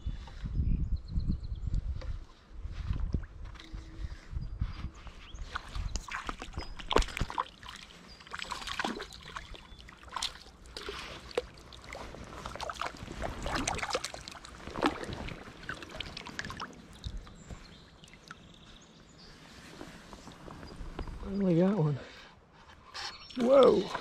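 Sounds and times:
fish splashing in water: 5.5 - 18.6.

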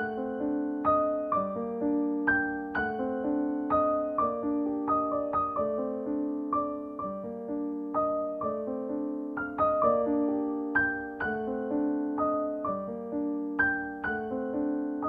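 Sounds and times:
gentle piano music: 0.0 - 15.0.

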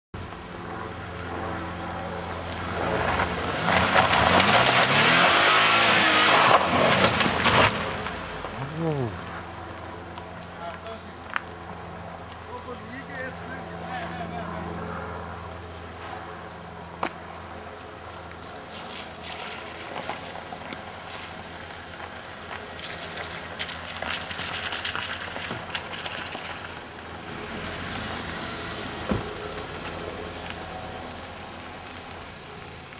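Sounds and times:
low engine hum: 0.2 - 32.9
car engine revving: 2.5 - 9.6, 23.0 - 31.4
tyres crunching over gravel: 17.8 - 32.9.

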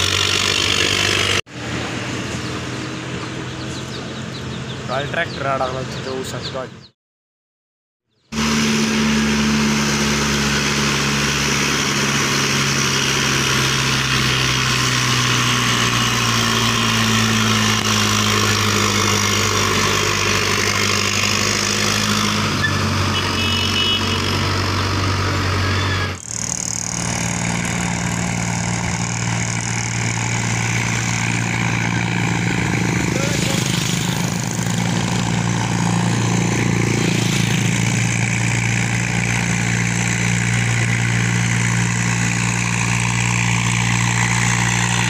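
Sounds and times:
tractor engines droning: 0.0 - 6.9, 8.2 - 45.0.

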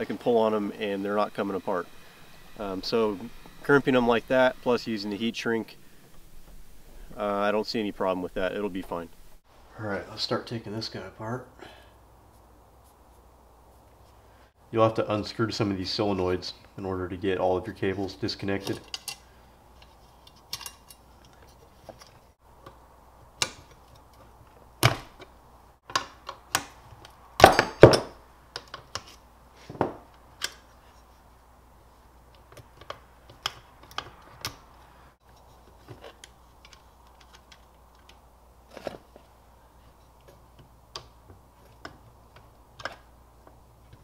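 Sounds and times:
metal nuts and bolts clicking: 18.7 - 19.2.

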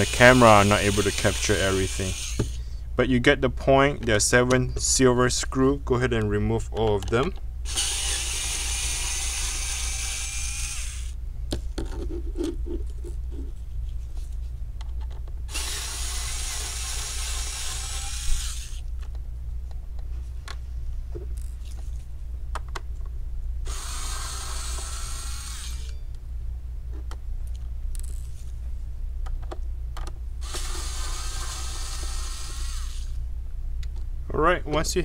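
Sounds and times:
cordless electric screwdriver: 0.0 - 2.6, 7.7 - 11.2, 15.5 - 18.8, 23.7 - 25.9, 30.4 - 33.2.

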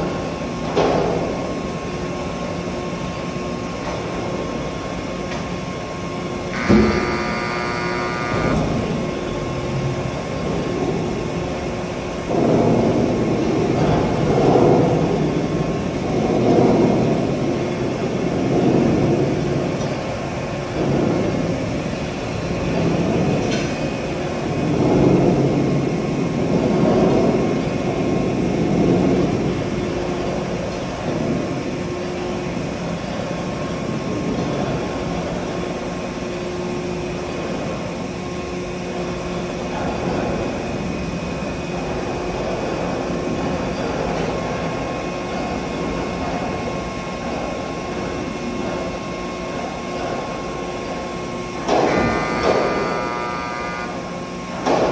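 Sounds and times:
hydraulic power unit humming: 4.2 - 16.0, 44.7 - 54.9.

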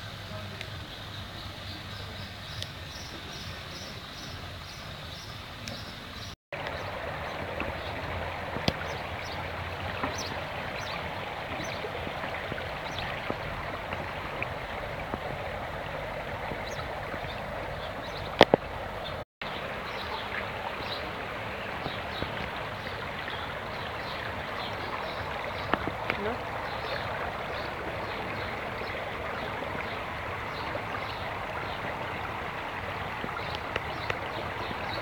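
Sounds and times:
running water rushing: 0.0 - 35.0.

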